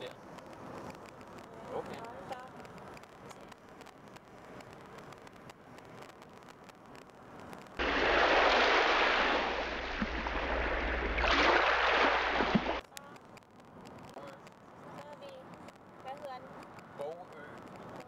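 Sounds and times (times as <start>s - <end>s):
sea waves rushing: 7.8s - 12.8s.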